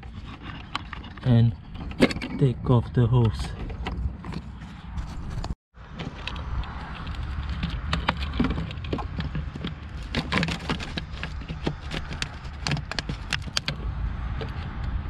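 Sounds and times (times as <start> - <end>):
plastic hoses clicking: 6.0 - 13.8.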